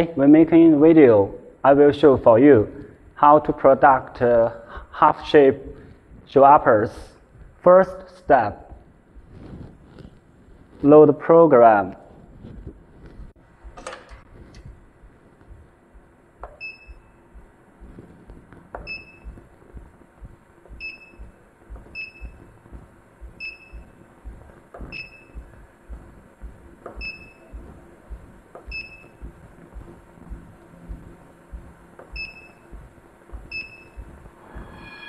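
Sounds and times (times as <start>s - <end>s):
stylus tapping on screen: 12.4s - 34.8s.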